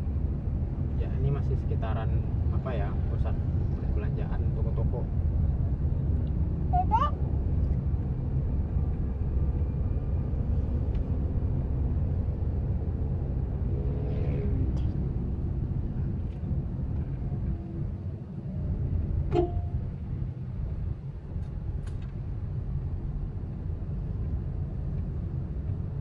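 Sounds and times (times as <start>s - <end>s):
engine and tyres rumbling: 0.0s - 26.0s.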